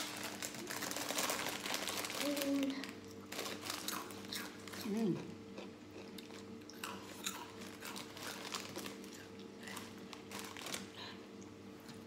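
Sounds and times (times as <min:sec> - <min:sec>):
plastic packet crinkling: 0:00.0 - 0:04.9, 0:07.5 - 0:11.1
crisp snack being chewed: 0:00.0 - 0:11.2.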